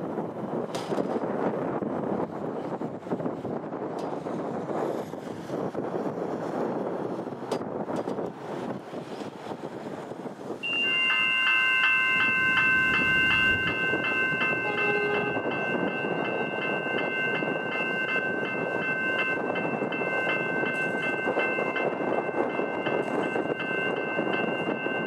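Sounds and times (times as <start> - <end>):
railway crossing bell ringing: 10.6 - 25.0.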